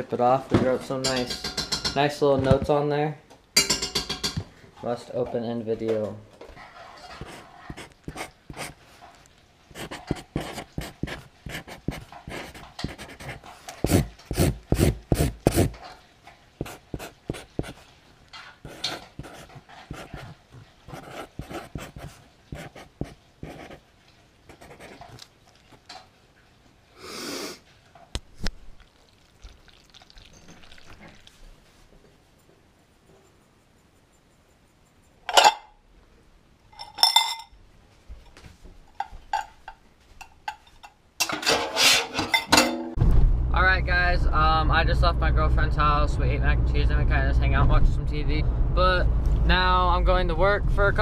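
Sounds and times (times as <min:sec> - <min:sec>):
marker scratching on cardboard: 0:07.1 - 0:08.8, 0:09.7 - 0:15.7, 0:16.6 - 0:17.9, 0:18.7 - 0:23.8, 0:24.5 - 0:25.2, 0:32.9 - 0:35.3.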